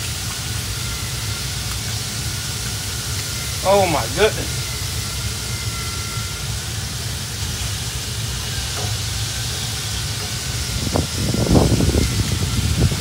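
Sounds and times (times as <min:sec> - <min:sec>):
grill hissing: 0:00.0 - 0:13.0.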